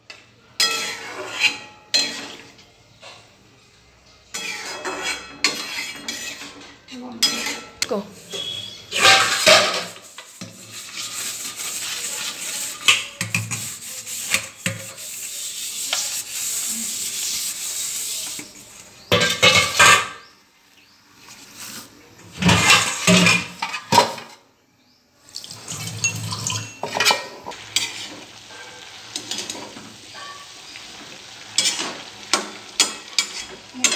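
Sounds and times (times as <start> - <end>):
sponge scrubbing metal bowls: 4.4 - 20.3, 21.2 - 24.2
metal clattering in sink: 8.4 - 15.0, 19.1 - 20.2, 22.2 - 24.3, 25.6 - 28.2.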